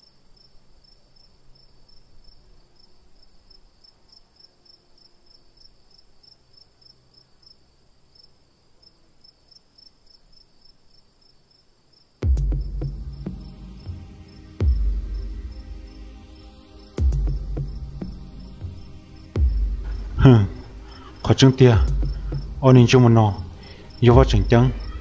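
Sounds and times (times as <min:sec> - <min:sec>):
crickets chirping: 0:00.0 - 0:25.0
high insect trill: 0:00.0 - 0:25.0
music: 0:12.2 - 0:25.0.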